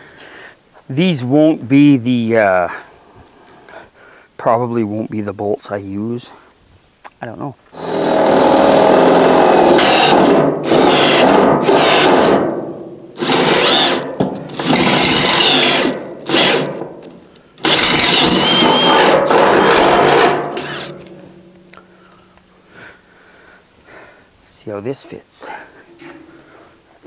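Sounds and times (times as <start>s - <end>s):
cordless drill boring through steel: 7.8s - 12.6s, 13.2s - 16.8s, 17.6s - 21.0s.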